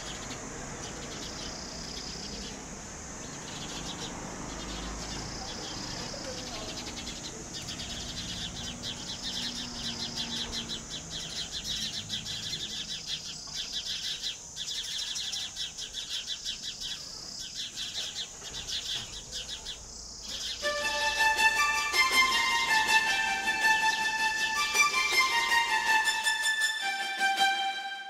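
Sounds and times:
sparrows chirping: 0:00.0 - 0:26.2
music with held notes: 0:20.6 - 0:28.0.

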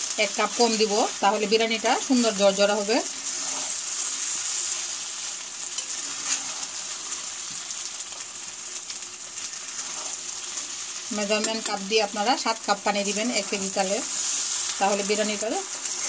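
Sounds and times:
rice sizzling in oil: 0:00.0 - 0:16.0
spatula scraping a pan: 0:02.1 - 0:05.1, 0:05.7 - 0:08.2, 0:09.4 - 0:11.9, 0:13.0 - 0:16.0.

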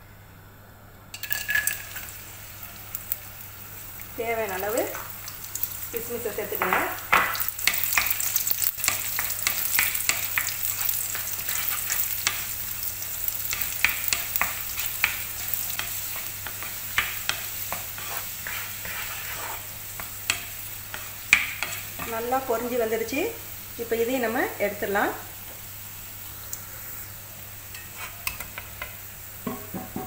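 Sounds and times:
raisins sizzling and popping: 0:01.1 - 0:30.0
wooden spoon scraping pan: 0:15.8 - 0:20.1.

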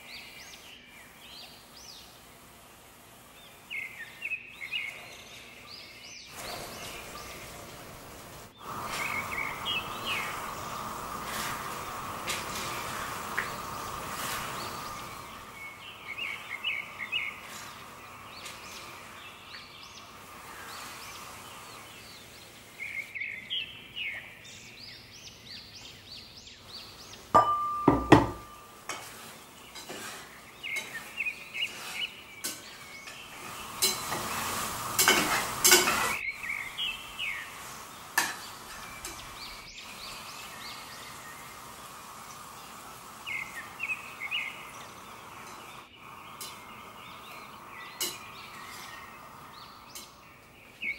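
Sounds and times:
birds chirping: 0:00.0 - 0:50.9
metal utensils clattering: 0:27.4 - 0:36.2, 0:38.2 - 0:39.3, 0:48.0 - 0:49.0.

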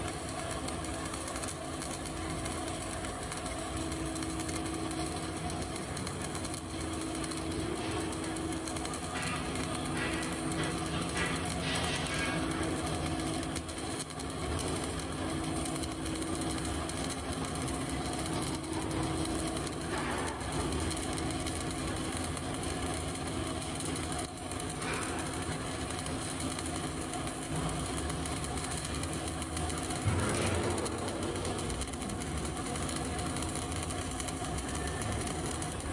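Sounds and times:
welding arc buzzing: 0:00.0 - 0:35.9.

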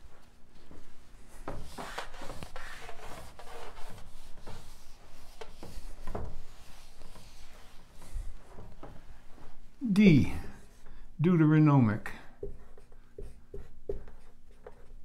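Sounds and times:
eraser wiping whiteboard: 0:01.2 - 0:09.6, 0:12.4 - 0:15.0.

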